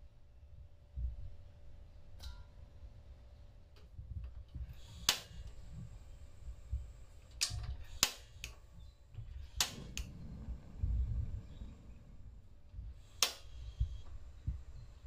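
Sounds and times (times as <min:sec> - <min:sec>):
gas burner igniter clicking: 0:04.7 - 0:05.7, 0:07.2 - 0:08.7, 0:09.3 - 0:10.7, 0:13.0 - 0:14.7.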